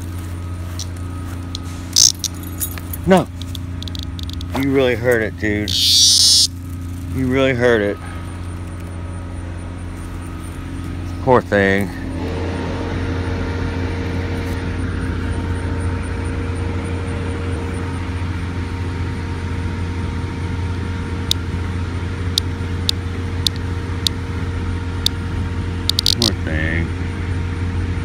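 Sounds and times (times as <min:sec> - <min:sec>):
low motor hum: 0:00.0 - 0:28.0
sharp high clicks: 0:01.5 - 0:02.8, 0:03.4 - 0:04.7, 0:05.7 - 0:06.6, 0:25.9 - 0:26.3.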